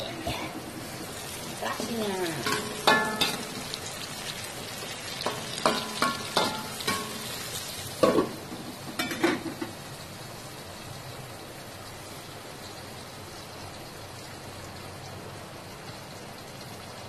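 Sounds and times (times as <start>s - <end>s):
food sizzling in oil: 0.0s - 17.0s
metal spatula clanking on wok: 2.3s - 3.8s, 5.2s - 7.4s, 8.0s - 8.4s, 9.0s - 9.7s.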